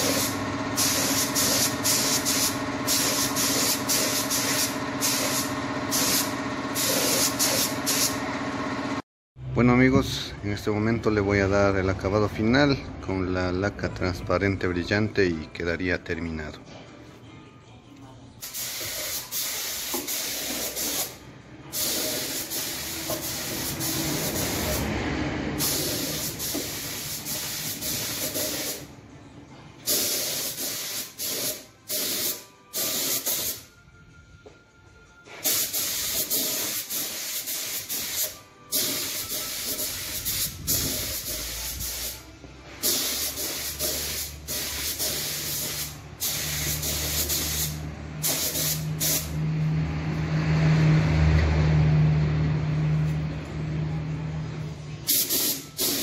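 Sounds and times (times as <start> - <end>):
spray gun hissing: 0.0 - 8.2, 18.4 - 21.2, 21.8 - 24.8, 25.6 - 28.8, 29.9 - 33.6, 35.4 - 42.2, 42.8 - 49.4, 55.1 - 56.0.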